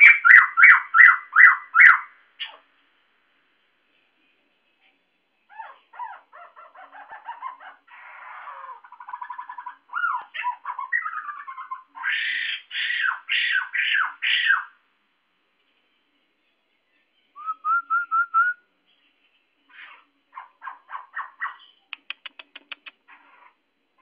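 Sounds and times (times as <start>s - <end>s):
bird chattering and trilling: 0.0s - 2.6s, 5.5s - 14.8s, 19.7s - 23.6s
loud descending bird calls: 5.5s - 14.8s.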